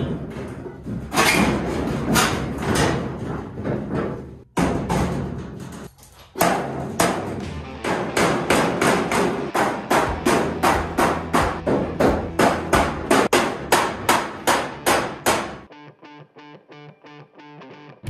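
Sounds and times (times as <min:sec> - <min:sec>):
guitar music: 0:07.4 - 0:08.2, 0:15.6 - 0:18.0.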